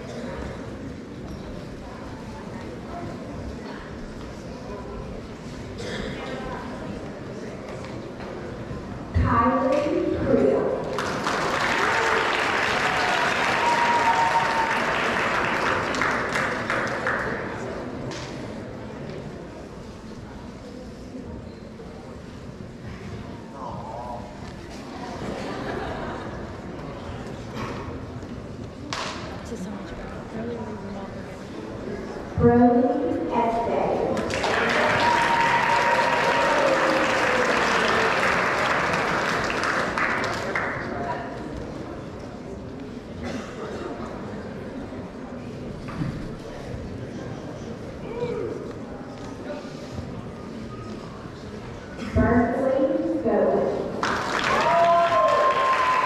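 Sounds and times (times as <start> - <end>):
audience clapping: 10.8 - 17.9, 34.1 - 41.2, 54.0 - 56.0.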